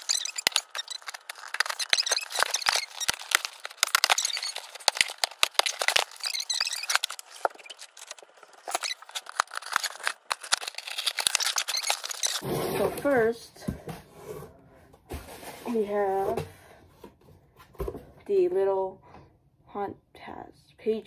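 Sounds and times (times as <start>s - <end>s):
paper and plastic rustling: 0.0s - 12.4s.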